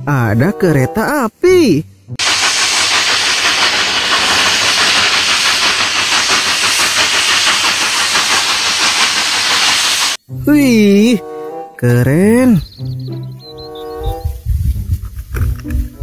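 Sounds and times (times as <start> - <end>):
steam hissing: 2.2 - 10.3
steam locomotive exhaust chuffing: 2.2 - 10.3.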